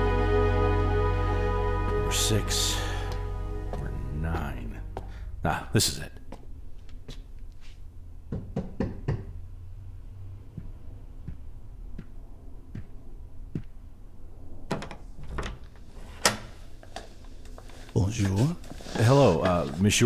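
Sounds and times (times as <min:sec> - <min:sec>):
low steady hum: 0:00.0 - 0:08.3
knocking on a door: 0:08.3 - 0:09.3.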